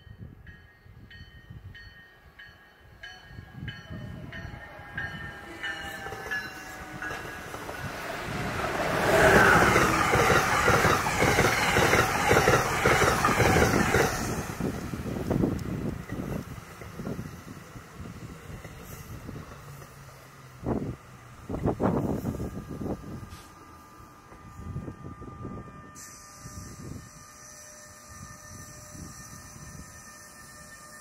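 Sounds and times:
train rushing past: 2.2 - 31.0
clatter of train wheels: 4.9 - 17.4.

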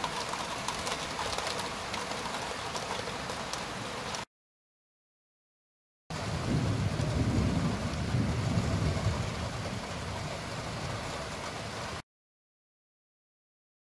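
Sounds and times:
distant thunder rumbling: 6.2 - 11.6.

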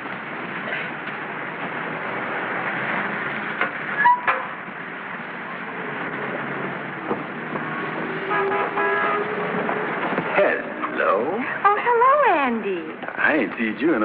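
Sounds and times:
street traffic: 0.0 - 14.0
car horn: 4.0 - 4.5, 8.0 - 9.6.

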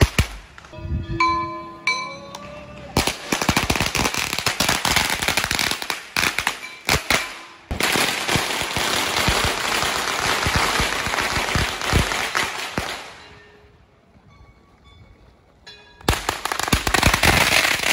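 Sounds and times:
firecrackers cracking: 0.0 - 0.8, 2.9 - 13.2, 16.1 - 17.9.

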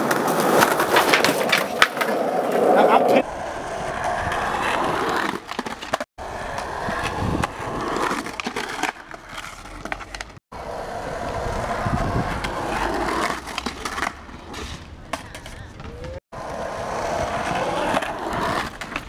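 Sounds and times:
skateboard clacking down: 0.0 - 3.2, 4.0 - 11.4
skateboard wheels rolling: 0.0 - 19.0.

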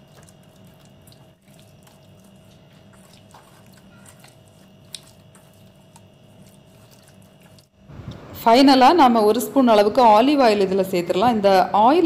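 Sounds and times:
hands squishing marinade into meat: 0.0 - 7.8.

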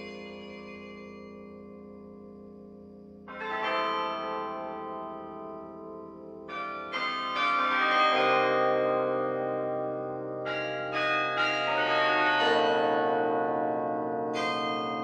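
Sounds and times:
carillon bells ringing: 0.0 - 1.8.

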